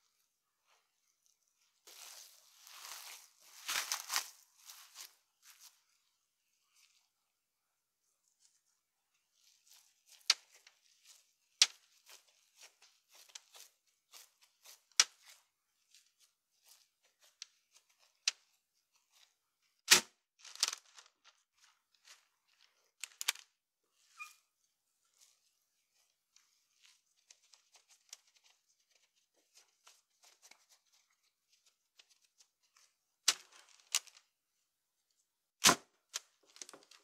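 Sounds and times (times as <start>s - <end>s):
crackly rustling: 0.0s - 7.2s, 8.0s - 23.6s, 36.0s - 37.0s.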